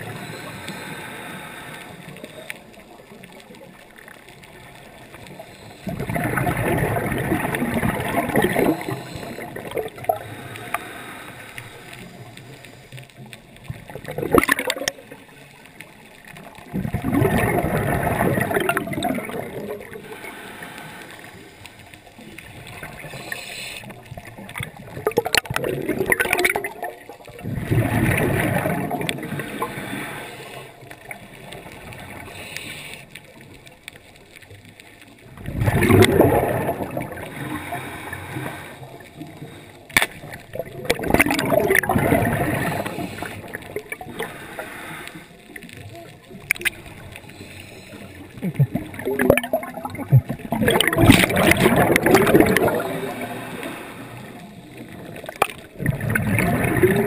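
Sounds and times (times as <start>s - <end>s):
scuba exhale bubbling: 0.0s - 15.6s, 16.2s - 33.7s, 34.3s - 57.0s
short bubbling bursts: 5.8s - 10.3s, 13.8s - 15.1s, 16.6s - 20.0s, 24.2s - 29.7s, 35.3s - 38.2s, 40.2s - 44.3s, 48.4s - 53.4s, 55.2s - 57.0s.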